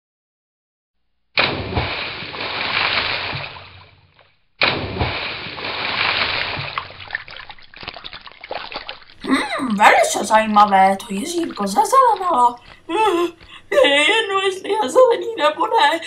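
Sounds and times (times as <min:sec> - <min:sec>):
water splashes: 0:01.4 - 0:14.8
water dripping: 0:04.6 - 0:14.9.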